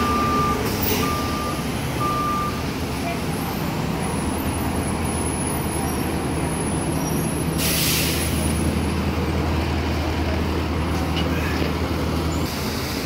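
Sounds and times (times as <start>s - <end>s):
bus engine idling: 0.0s - 13.0s
compressed air hiss: 7.6s - 8.4s.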